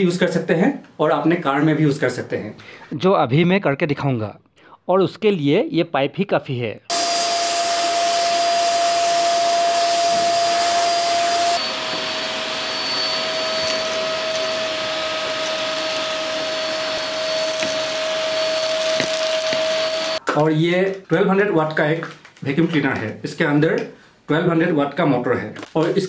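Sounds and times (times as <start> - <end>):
vacuum cleaner running: 6.9 - 20.2.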